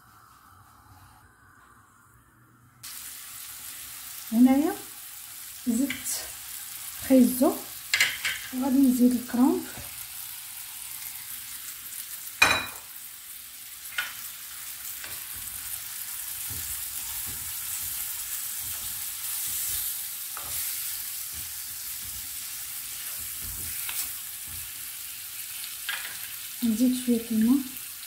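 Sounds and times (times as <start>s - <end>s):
vegetables sizzling in oil: 2.8s - 28.0s.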